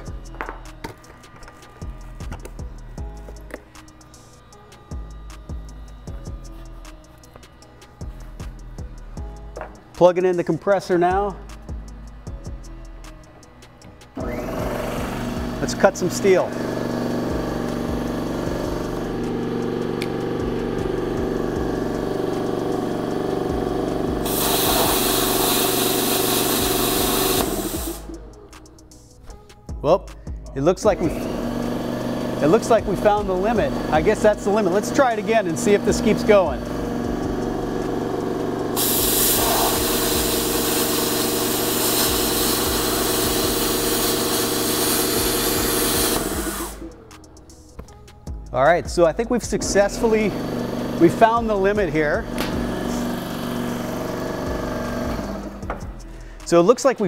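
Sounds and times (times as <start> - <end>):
air compressor running: 0.0 - 56.6
plasma cutter hissing: 24.1 - 28.2, 32.5 - 47.0.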